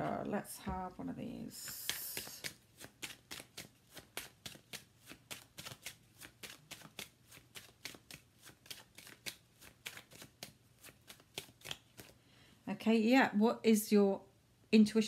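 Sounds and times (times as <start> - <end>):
cards being shuffled: 1.5 - 12.2.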